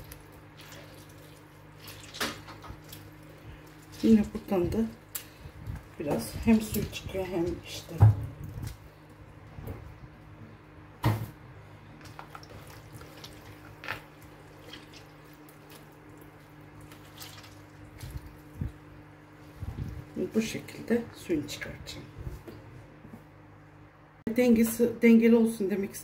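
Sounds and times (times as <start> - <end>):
tomatoes squelching and dripping: 0.0 - 9.2, 12.0 - 20.3
steady low hum: 0.0 - 26.0.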